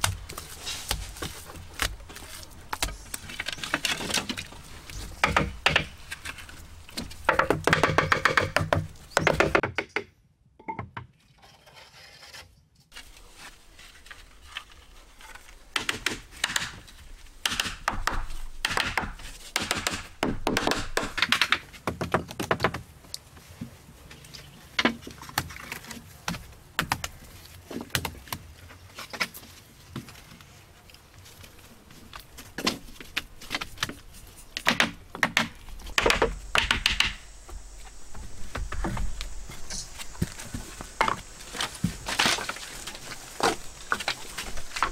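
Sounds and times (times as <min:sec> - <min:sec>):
thuds on bamboo wall: 0:17.4 - 0:22.8.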